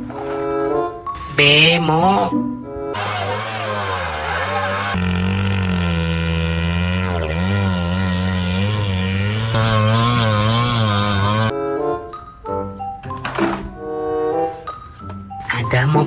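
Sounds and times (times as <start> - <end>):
auto-rickshaw engines revving: 3.0 - 11.5.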